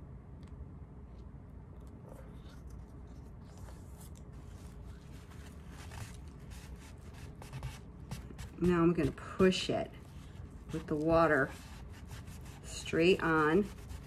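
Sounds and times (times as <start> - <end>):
low steady hum: 0.0 - 14.0
wet paper towel rubbing on paper: 4.4 - 14.0.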